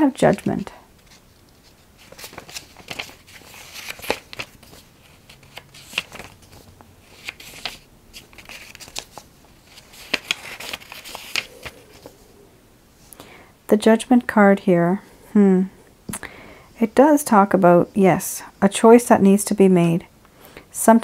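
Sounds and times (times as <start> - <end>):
cards being shuffled: 0.2 - 12.2.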